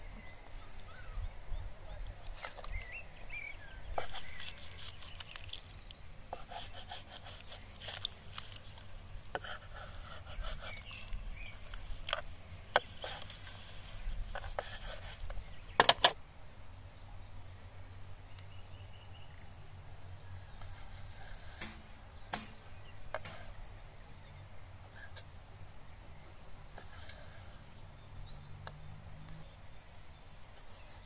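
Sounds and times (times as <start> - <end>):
knife scraping a cutting board: 4.0 - 5.6, 9.4 - 12.2
sharp knocks: 21.6 - 23.5.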